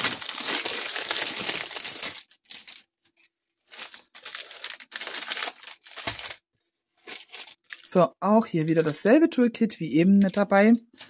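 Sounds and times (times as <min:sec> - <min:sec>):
plastic packaging crinkling: 0:00.0 - 0:03.0, 0:03.6 - 0:06.4, 0:07.0 - 0:08.0, 0:08.6 - 0:09.1.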